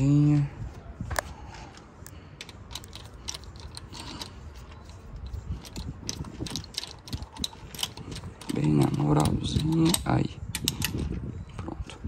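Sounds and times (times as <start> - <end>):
clicks of small metal parts: 2.0 - 11.1.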